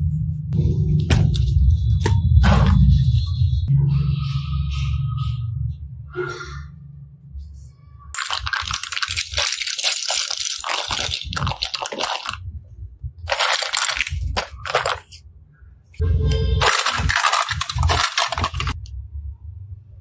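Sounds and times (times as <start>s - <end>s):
plastic toys clattering: 8.2s - 12.4s, 13.2s - 15.2s, 16.6s - 18.8s.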